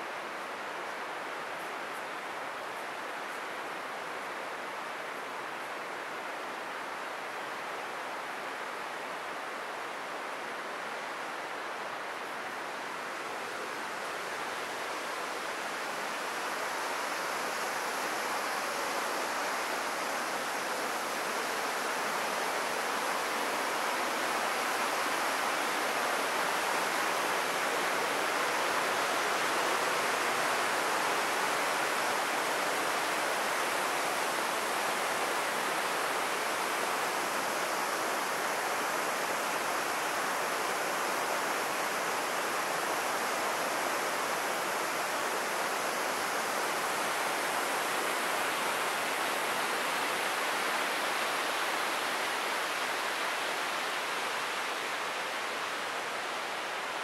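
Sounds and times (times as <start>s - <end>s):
white water rushing: 0.0s - 57.0s.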